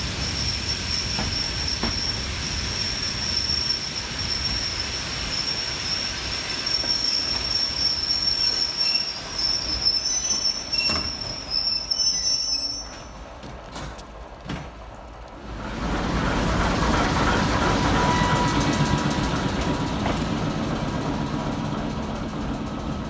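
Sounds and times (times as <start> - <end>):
train wheels squealing: 0.0 - 13.2, 17.0 - 19.8
train rolling rumble: 0.0 - 23.0.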